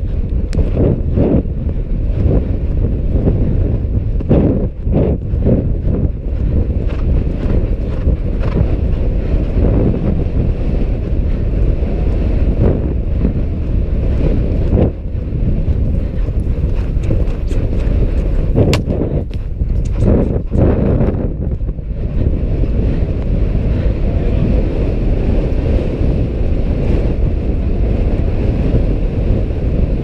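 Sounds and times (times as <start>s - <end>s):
wind buffeting microphone: 0.0s - 30.0s
sharp clicks and taps: 16.7s - 20.7s.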